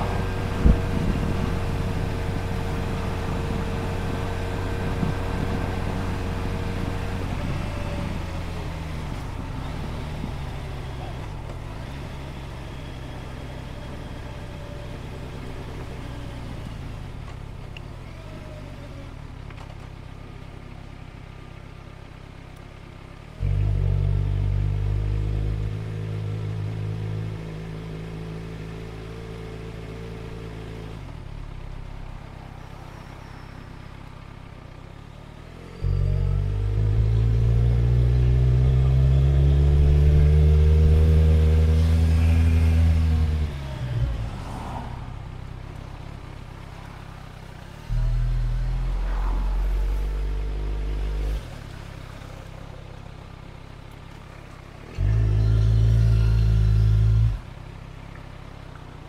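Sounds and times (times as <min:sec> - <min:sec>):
motorcycle engine revving: 0:35.5 - 0:46.0, 0:47.4 - 0:52.8, 0:54.8 - 0:57.6.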